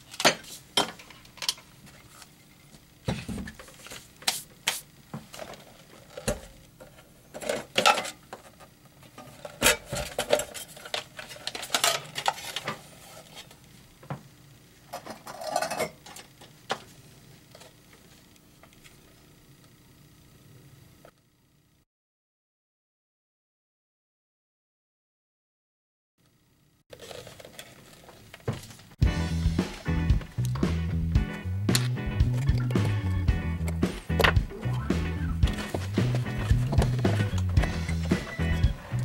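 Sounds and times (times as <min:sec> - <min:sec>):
tools and hard parts clattering: 0:05.4 - 0:08.5, 0:09.2 - 0:12.8, 0:15.0 - 0:16.2.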